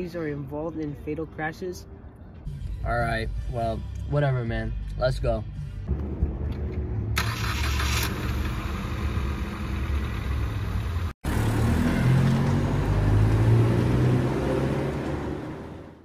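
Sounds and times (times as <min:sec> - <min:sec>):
car engine starting and revving: 0:05.9 - 0:16.0.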